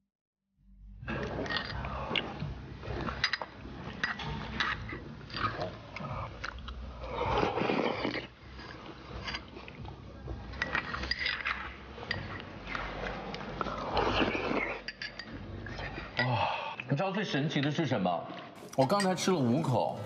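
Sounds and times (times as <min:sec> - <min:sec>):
slurping: 0:01.0 - 0:16.9.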